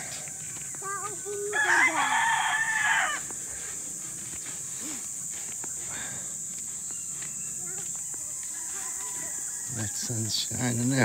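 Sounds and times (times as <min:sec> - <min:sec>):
rooster crowing: 0:00.0 - 0:03.4, 0:07.7 - 0:10.7
high-pitched insect buzz: 0:00.0 - 0:11.0.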